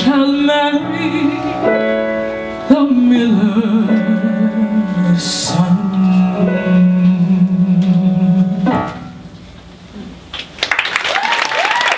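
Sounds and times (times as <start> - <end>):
audience applause: 10.6 - 11.9.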